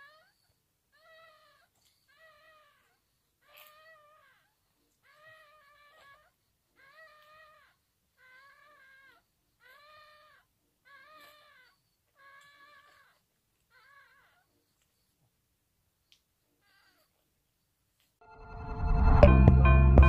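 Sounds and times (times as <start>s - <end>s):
puppy whining cries: 0.0s - 15.0s, 16.6s - 17.2s.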